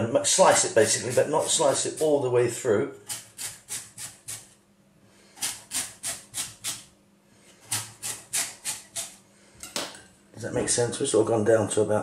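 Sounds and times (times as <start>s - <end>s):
knife sawing through sweet potato: 0.4s - 2.4s, 3.0s - 4.5s, 5.4s - 6.8s, 7.6s - 9.2s.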